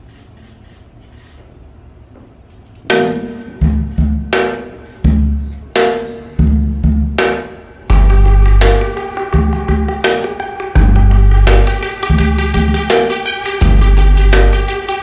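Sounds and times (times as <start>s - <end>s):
beat with deep bass: 2.9s - 15.0s
struck ringing notes: 7.9s - 15.0s.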